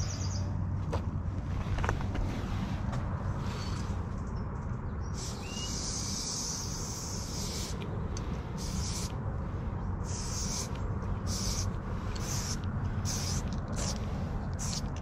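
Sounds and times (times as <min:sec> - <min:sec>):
spray paint can hissing: 0:05.2 - 0:09.2, 0:10.0 - 0:15.0.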